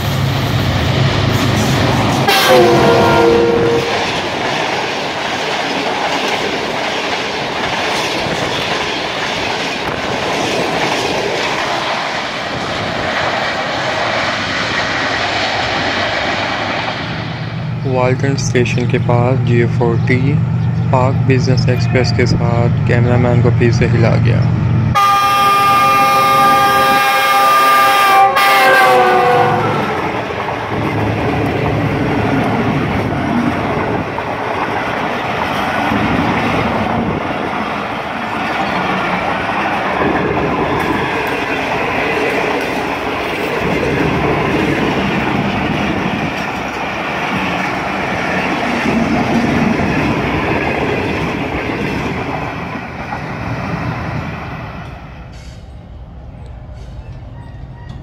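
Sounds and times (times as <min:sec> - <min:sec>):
train wheels clattering: 0:00.0 - 0:17.1
locomotive horn: 0:02.3 - 0:04.2, 0:24.9 - 0:30.2.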